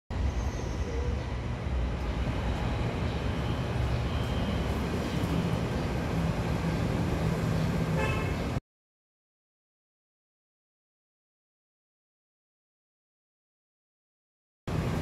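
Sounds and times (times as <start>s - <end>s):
urban background rumble: 0.1s - 8.6s, 14.7s - 15.0s.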